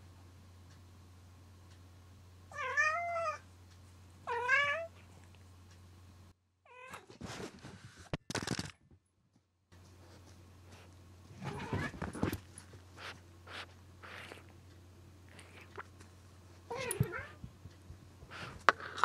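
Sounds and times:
cat meowing: 0:02.5 - 0:03.4, 0:04.3 - 0:04.9, 0:11.4 - 0:12.0.

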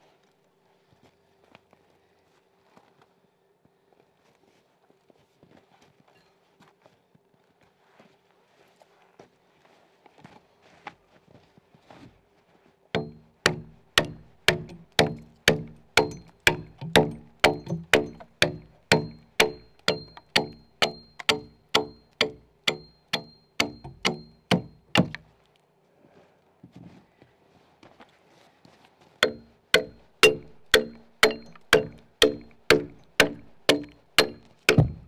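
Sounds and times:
axe chopping log: 0:13.0 - 0:25.2, 0:29.2 - 0:35.0.

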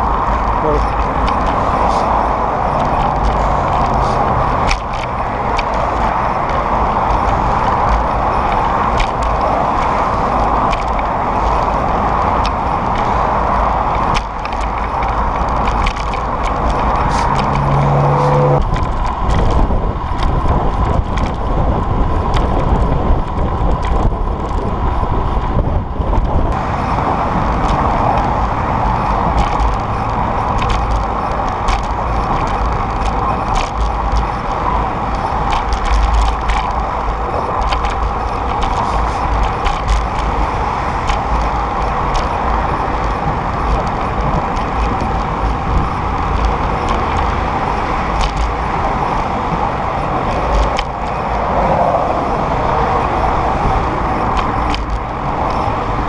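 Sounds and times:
freeway traffic: 0:00.0 - 0:56.0
wind rushing on microphone: 0:00.0 - 0:56.0
short pitched tone: 0:17.6 - 0:18.6.

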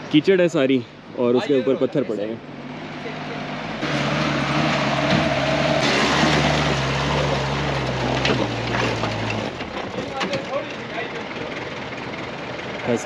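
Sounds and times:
stones clicking under tyres: 0:07.8 - 0:10.6.

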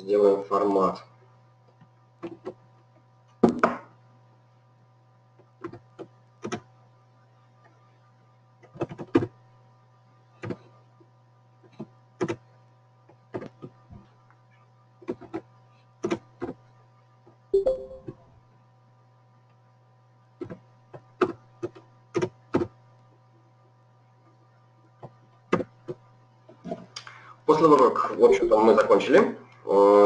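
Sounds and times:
steady low hum: 0:00.0 - 0:30.0
keyboard and mouse clicks: 0:05.6 - 0:06.7, 0:08.6 - 0:09.3.

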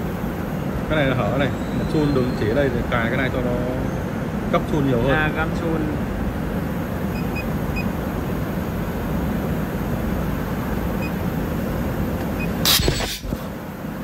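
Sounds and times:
short electronic beeps: 0:07.1 - 0:07.9, 0:12.4 - 0:13.1
pneumatic air burst: 0:12.4 - 0:13.6.

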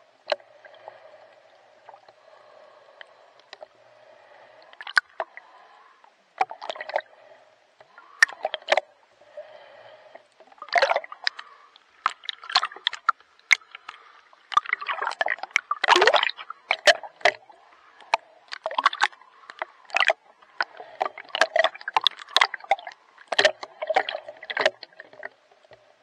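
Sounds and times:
water splashing from swimming strokes: 0:10.6 - 0:25.4.

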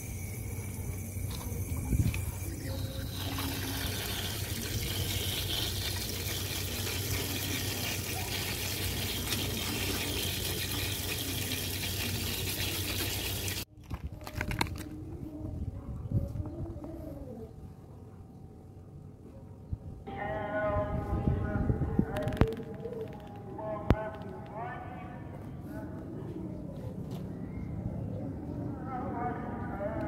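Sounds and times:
running tap water: 0:00.0 - 0:13.7.

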